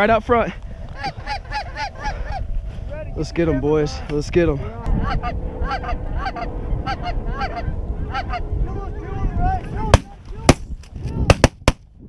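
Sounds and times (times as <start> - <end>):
geese honking: 0.9 - 2.6, 4.5 - 9.7.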